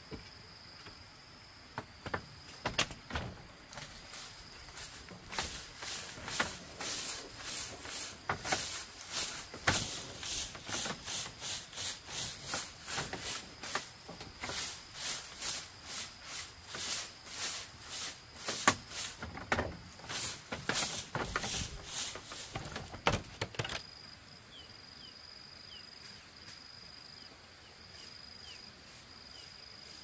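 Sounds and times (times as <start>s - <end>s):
broom sweeping bamboo floor: 2.0s - 23.8s, 28.0s - 30.0s.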